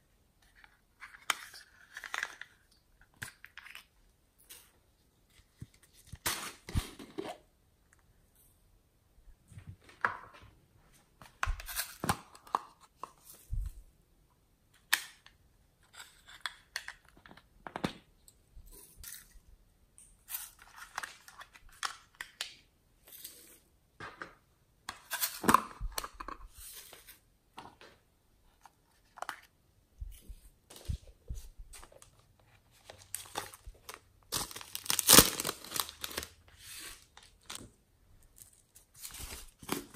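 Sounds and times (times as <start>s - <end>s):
plastic rustling: 30.7s - 39.9s.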